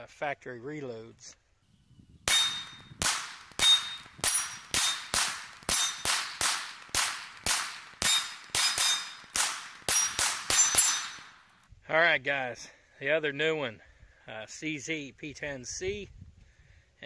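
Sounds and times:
pistol shots: 2.3 - 11.6
steel plate target ping: 2.3 - 11.6.

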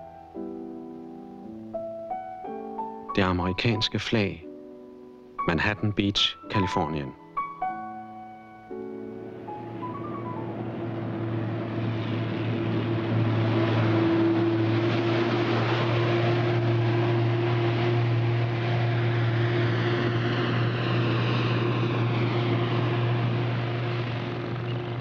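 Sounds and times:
truck engine drone: 8.7 - 25.0.

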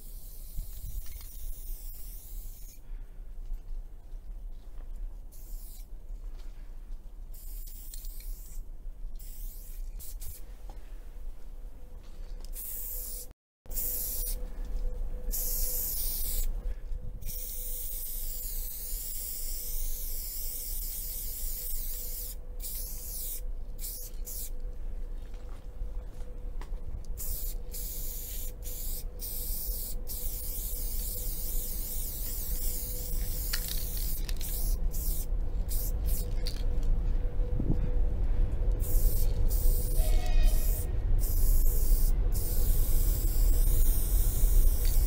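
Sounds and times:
spray paint can hissing: 0.0 - 2.8, 5.3 - 5.9, 7.3 - 8.6, 9.2 - 10.4, 12.6 - 14.4, 15.3 - 16.5, 17.3 - 24.5, 27.2 - 36.6, 38.8 - 45.0.

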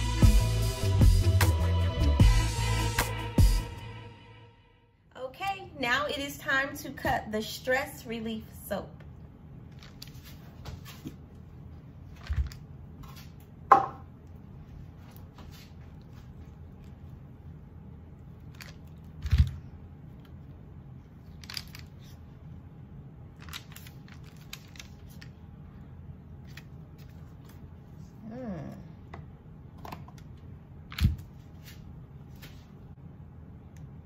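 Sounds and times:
faint steady hum: 4.8 - 34.0.

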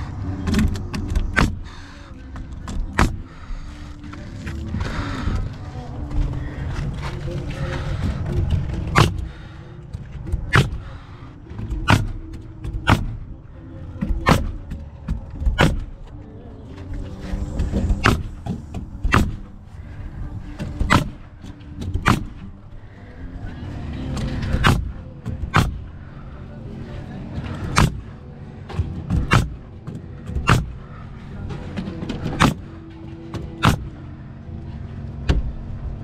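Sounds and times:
steady low rumble: 0.0 - 36.0
hammer striking nails: 17.8 - 19.5, 29.1 - 30.8.

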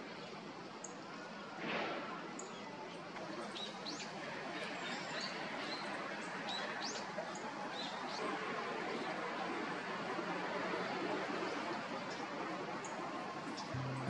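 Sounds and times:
songbird call notes: 13.6 - 14.0.

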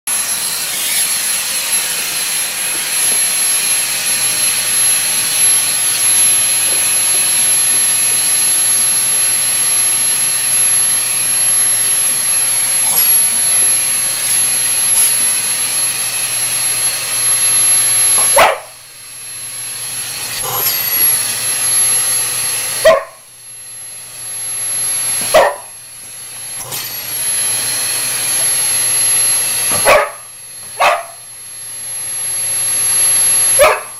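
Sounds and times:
vacuum cleaner whining: 0.1 - 33.9
dog barking: 18.2 - 18.8, 22.8 - 23.2, 25.3 - 25.8, 29.7 - 31.2, 33.6 - 33.9.

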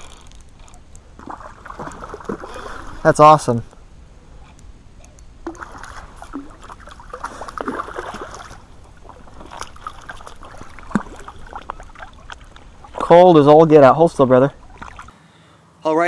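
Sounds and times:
fish splashing at water surface: 1.2 - 3.1, 5.4 - 13.1, 14.6 - 15.1.

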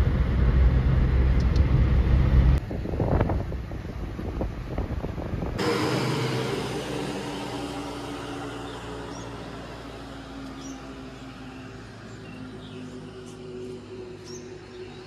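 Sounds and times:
road and wind noise inside car: 0.0 - 15.0
vehicle engine hum and tyre noise: 0.0 - 15.0.

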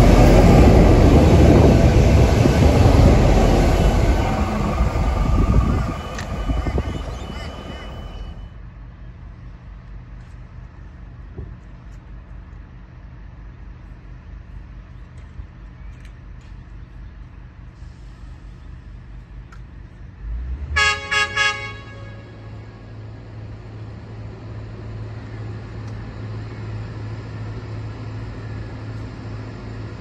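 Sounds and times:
steady low rumble: 0.0 - 8.5
locomotive air horn blasts: 5.3 - 8.4, 20.8 - 22.7.

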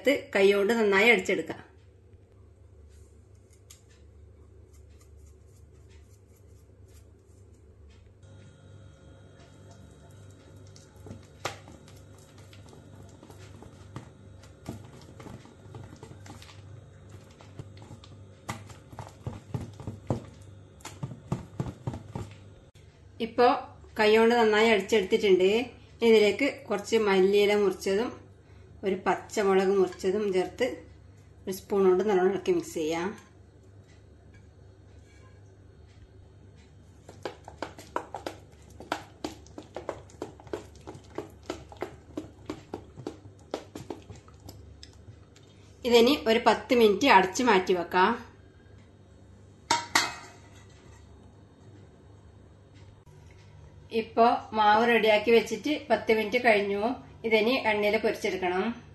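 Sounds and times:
hand slapping wet batter: 37.0 - 45.1.

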